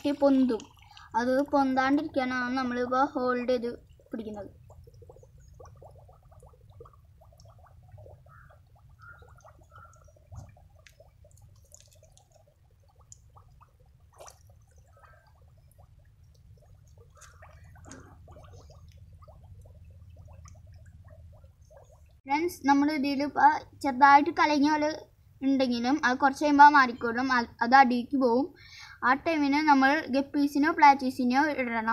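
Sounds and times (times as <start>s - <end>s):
water gurgling and bubbling in soil: 0.0s - 22.3s.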